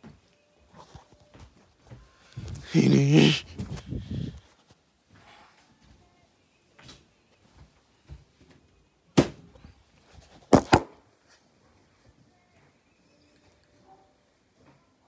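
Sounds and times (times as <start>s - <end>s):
sharp knocks of hard objects: 10.5s - 10.9s.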